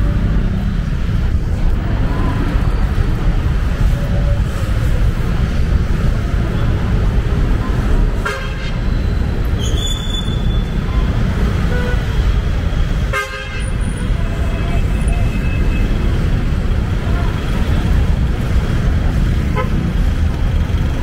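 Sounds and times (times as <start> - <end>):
street traffic rumble: 0.0 - 21.0.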